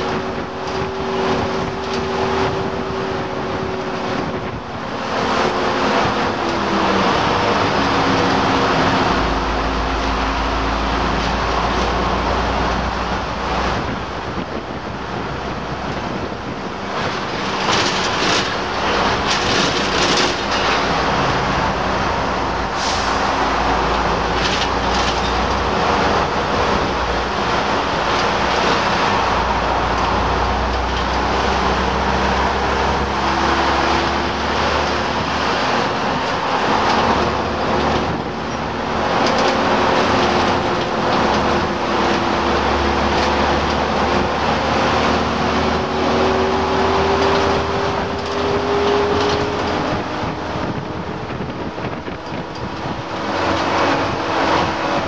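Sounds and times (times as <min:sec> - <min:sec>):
bus diesel engine running: 0:00.0 - 0:55.0
road noise: 0:00.0 - 0:55.0
rattles and knocks: 0:15.2 - 0:22.3.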